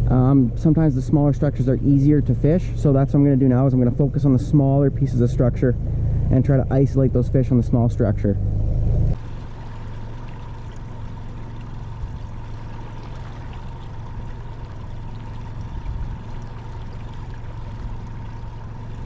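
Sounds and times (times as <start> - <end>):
boat motor humming: 0.0 - 19.0
faint steady whine: 0.0 - 19.0
water washing along hull: 9.1 - 19.0.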